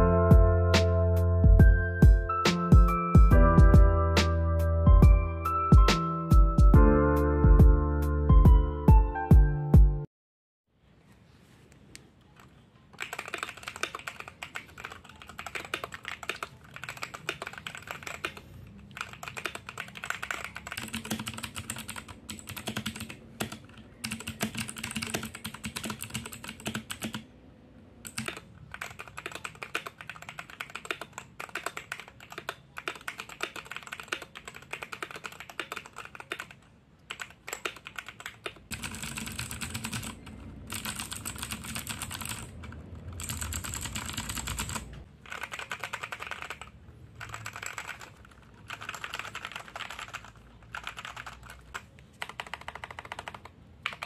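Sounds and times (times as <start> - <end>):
mechanical keyboard typing: 12.4 - 27.3, 28.0 - 54.0.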